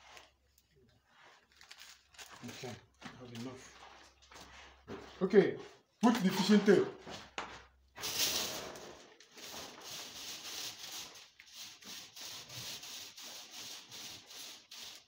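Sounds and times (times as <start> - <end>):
fish tape scraping inside conduit: 8.0 - 15.0.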